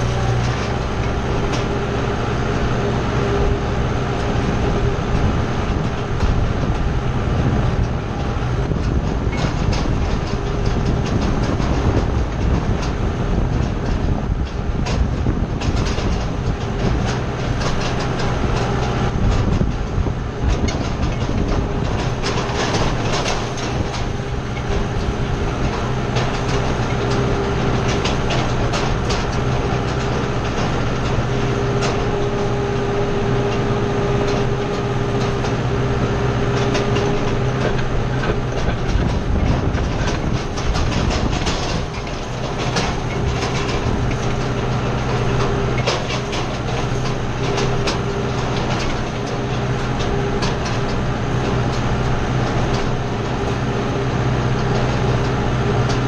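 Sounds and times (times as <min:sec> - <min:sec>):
hay rake clicking and rattling: 0:00.0 - 0:56.0
tractor diesel engine running: 0:00.0 - 0:56.0.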